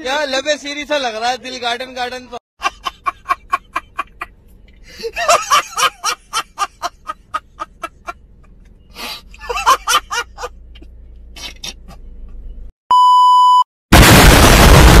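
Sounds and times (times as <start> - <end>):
man laughing: 2.6 - 4.3, 4.9 - 8.7, 9.4 - 10.8
steady beep: 12.9 - 13.6
loud explosion blast: 13.9 - 15.0.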